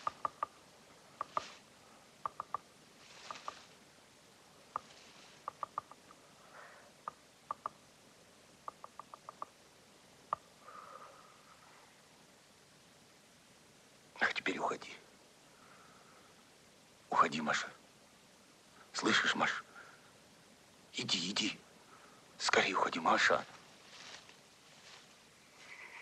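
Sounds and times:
soft rustles: 0:01.2 - 0:01.7, 0:02.9 - 0:03.8, 0:04.8 - 0:05.5, 0:23.3 - 0:26.0
quick sharp pitched taps: 0:02.2 - 0:02.6, 0:08.7 - 0:09.5.

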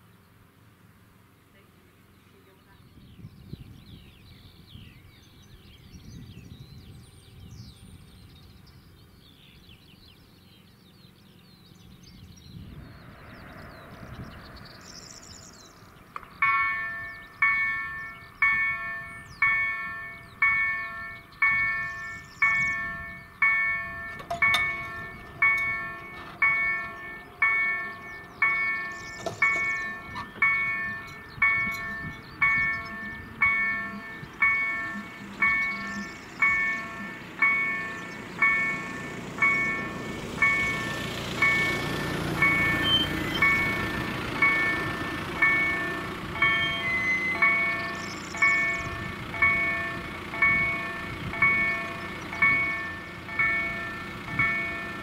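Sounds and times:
birds chirping faintly: 0:01.2 - 0:55.0
level crossing warning bells: 0:14.8 - 0:55.0.

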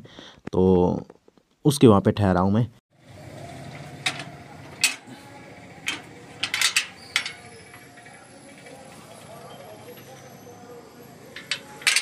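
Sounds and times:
metal gate latch clicking and clanking: 0:04.0 - 0:05.2, 0:05.8 - 0:08.2, 0:11.4 - 0:12.0.

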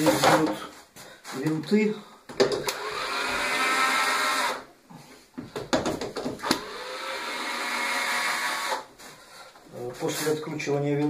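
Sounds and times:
cordless screwdriver whining: 0:02.6 - 0:04.6, 0:06.4 - 0:08.8.

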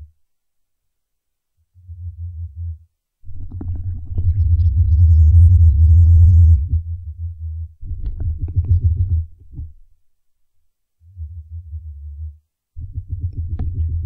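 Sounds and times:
insect vibration humming pulses: 0:01.7 - 0:09.4.

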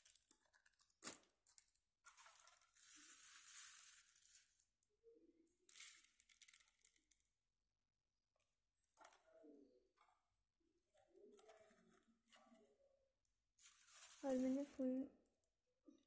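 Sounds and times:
thin plastic crinkling: 0:00.0 - 0:04.8, 0:05.7 - 0:07.3, 0:13.6 - 0:15.0.

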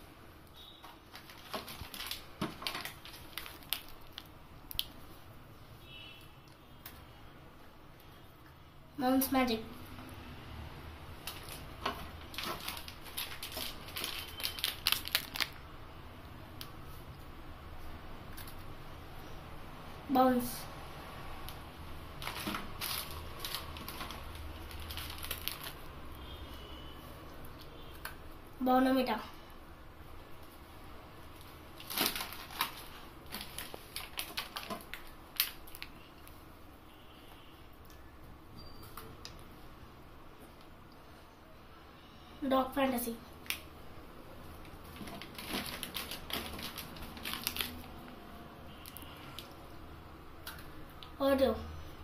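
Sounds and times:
plastic wrapper crinkling: 0:00.6 - 0:05.0, 0:11.2 - 0:15.7, 0:22.2 - 0:26.1, 0:31.4 - 0:36.4, 0:44.5 - 0:49.6.

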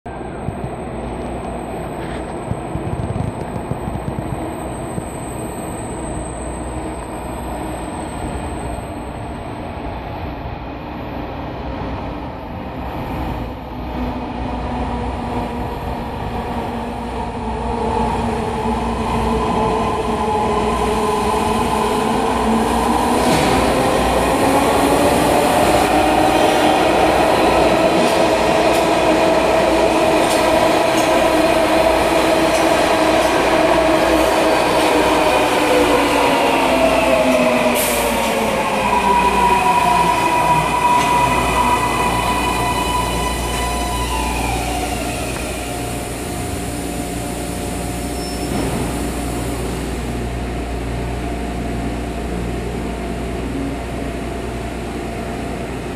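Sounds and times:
subway train rumble: 0:00.0 - 0:55.9.

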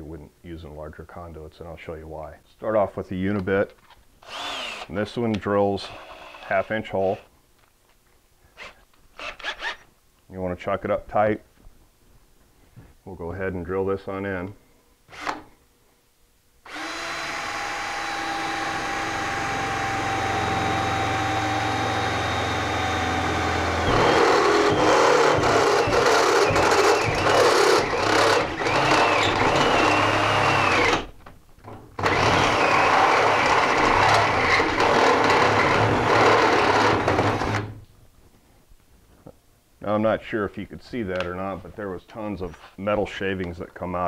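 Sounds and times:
drill bit grinding into steel: 0:04.2 - 0:04.9, 0:05.8 - 0:07.2, 0:16.7 - 0:31.1, 0:32.0 - 0:37.7
cordless drill whining: 0:04.2 - 0:05.0, 0:05.8 - 0:07.2, 0:08.6 - 0:09.9, 0:15.1 - 0:15.4, 0:16.7 - 0:31.1, 0:32.0 - 0:37.7.

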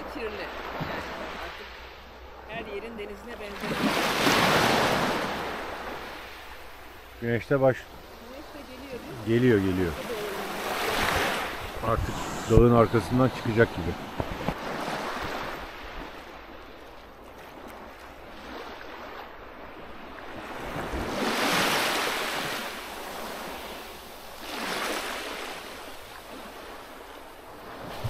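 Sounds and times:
waves washing onto pebble shore: 0:07.7 - 0:16.2, 0:20.4 - 0:28.0.

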